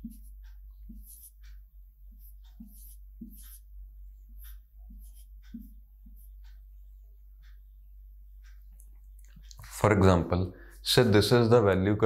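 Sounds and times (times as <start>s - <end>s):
marker pen writing on whiteboard: 0.0s - 6.6s.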